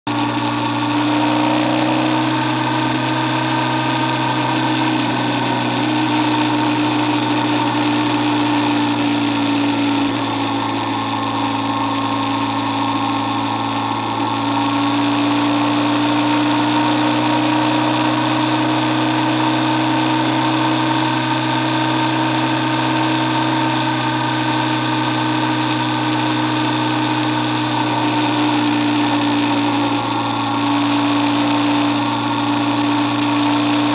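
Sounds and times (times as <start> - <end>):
motorcycle engine drone: 0.0 - 33.9.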